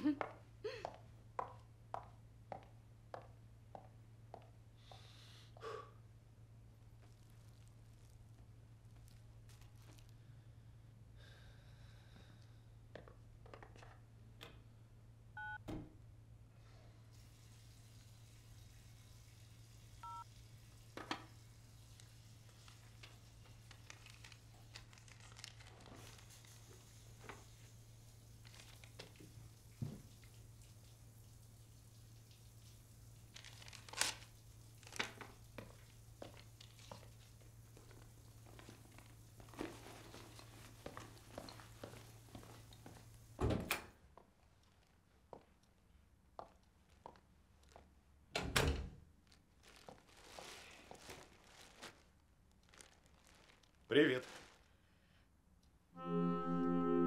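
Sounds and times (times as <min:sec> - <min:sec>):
paper rustling and tearing: 0:22.6 - 0:26.8, 0:33.3 - 0:35.3, 0:49.6 - 0:54.8.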